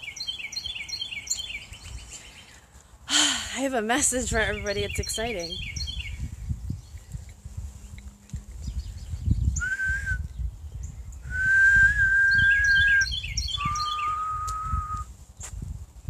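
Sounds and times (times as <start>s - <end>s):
small birds chirping rapidly: 0.0s - 2.7s, 4.2s - 9.6s, 12.4s - 14.2s
person whistling held notes: 9.6s - 10.3s, 11.3s - 15.1s.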